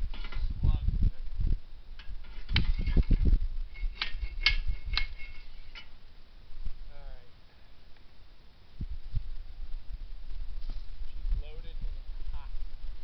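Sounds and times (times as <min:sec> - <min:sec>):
metal knocking on metal: 0:03.8 - 0:05.9.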